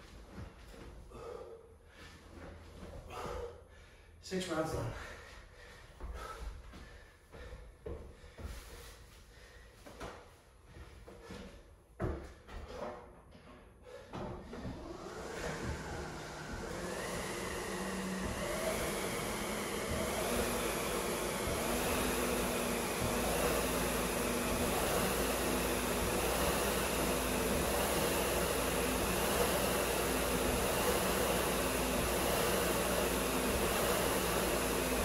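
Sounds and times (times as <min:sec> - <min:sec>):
air flywheel whirring: 0:14.4 - 0:35.0.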